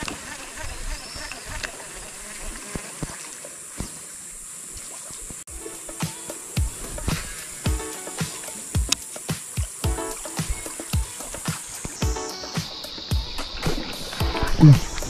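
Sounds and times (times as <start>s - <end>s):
water hissing: 0.0s - 15.0s
high-pitched insect drone: 5.5s - 15.0s.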